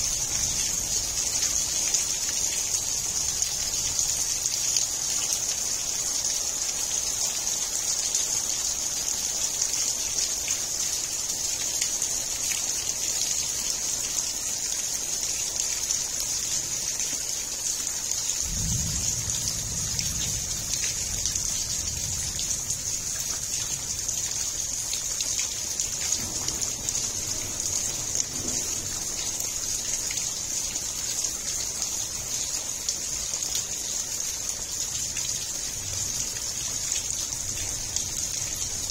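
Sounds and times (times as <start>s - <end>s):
heavy rain hissing: 13.7s - 38.9s.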